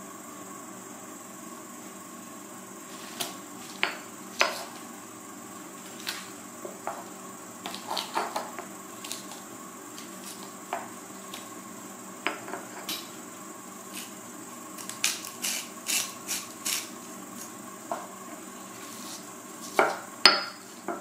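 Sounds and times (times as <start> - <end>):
pestle knocking in stone mortar: 19.8 - 21.0.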